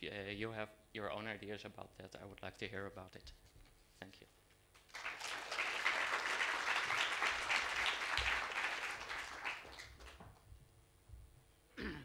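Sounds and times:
audience applauding: 4.8 - 10.4.

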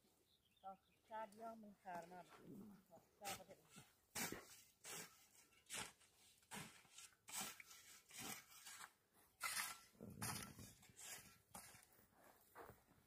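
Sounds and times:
rake scraping dry grass: 3.2 - 11.9.

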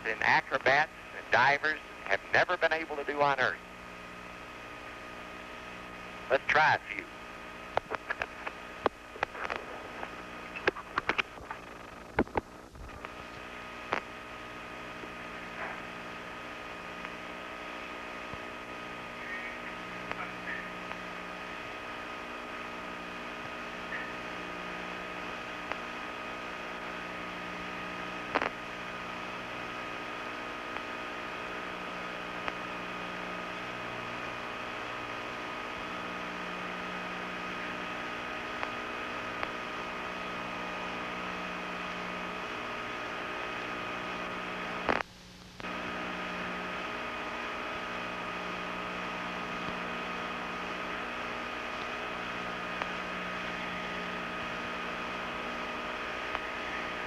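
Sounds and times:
cabin fans hum and hiss: 0.0 - 57.0
faint ticks: 12.1 - 14.1.

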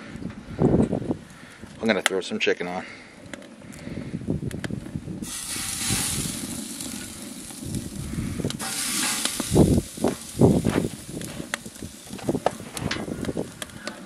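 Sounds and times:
steady hiss: 5.2 - 14.0.

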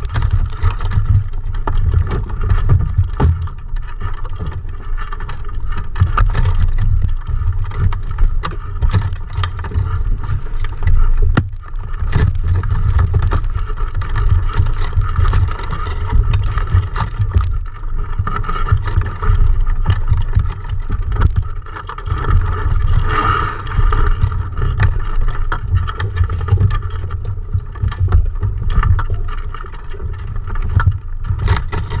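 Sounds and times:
clicks and knocks: 0.0 - 4.6, 6.0 - 15.6
wind rumbling on microphone: 0.0 - 32.0.

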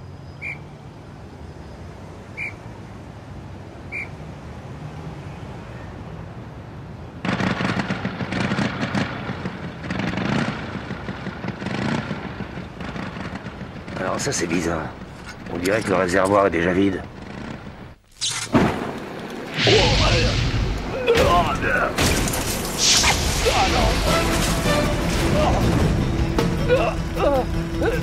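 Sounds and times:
rough motorcycle engine: 13.0 - 18.0.

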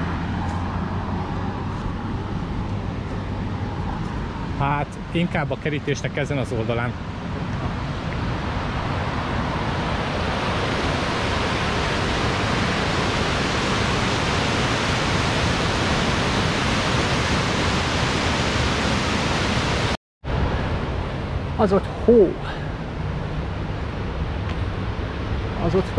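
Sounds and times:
stream rushing over boulders: 7.0 - 20.0.

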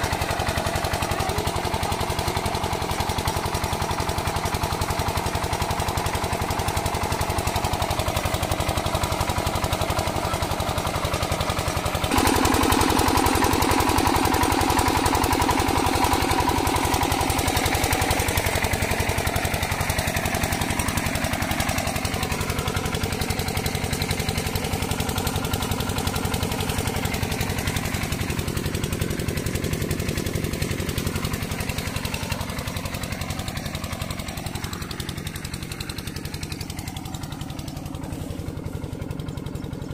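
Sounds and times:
diesel engine thumping: 0.0 - 39.9.

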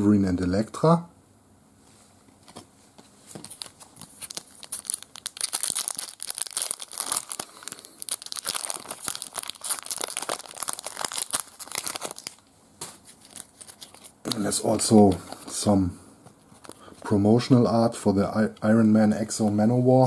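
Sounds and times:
foil wrapper crinkling and tearing: 3.4 - 12.4, 13.0 - 15.2.

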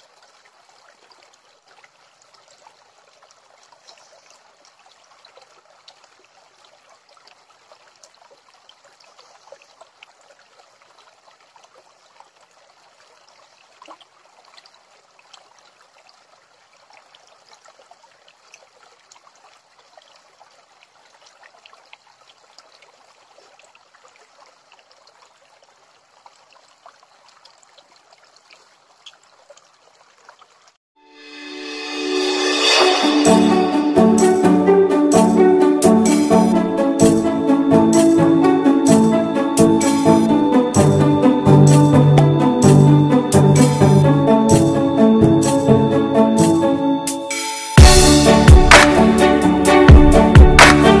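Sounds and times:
stream trickling over rocks: 0.0 - 30.8.

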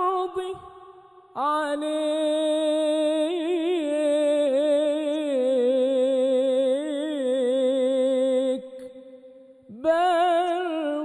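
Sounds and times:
man singing unaccompanied: 1.4 - 8.8, 9.7 - 11.0.

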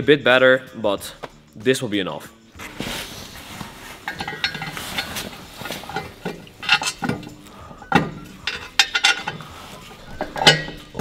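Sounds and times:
metal exhaust pipe clanking: 4.0 - 11.0.

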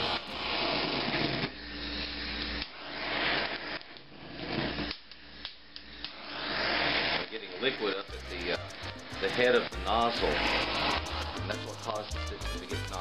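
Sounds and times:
gas torch hissing: 0.0 - 12.2.

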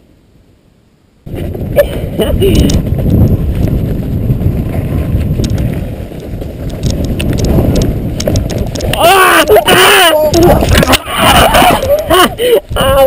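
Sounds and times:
wind buffeting microphone: 1.2 - 13.0
bike chain and frame rattling: 2.5 - 12.2.

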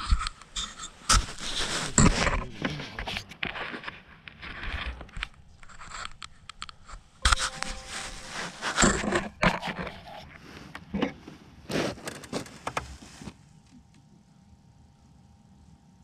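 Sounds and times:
camera handling on snowy ice: 3.0 - 10.4.

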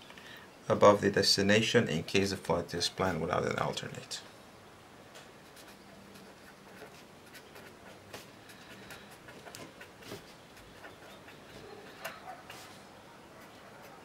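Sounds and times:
pen scratching on paper: 5.4 - 12.8.

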